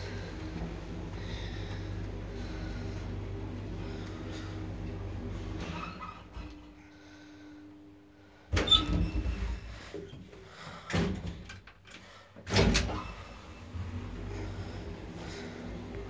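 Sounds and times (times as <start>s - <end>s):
steady low hum: 0.0s - 16.0s
elevator doors banging shut: 12.5s - 13.5s.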